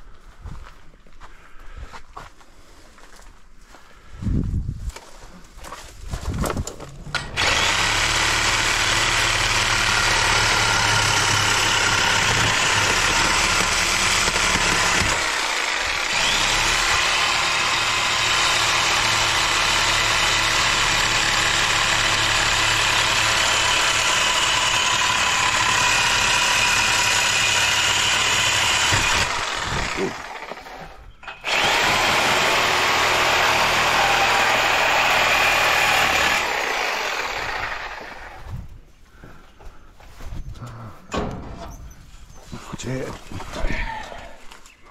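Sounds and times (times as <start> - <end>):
power tool running: 7.1 - 38.5.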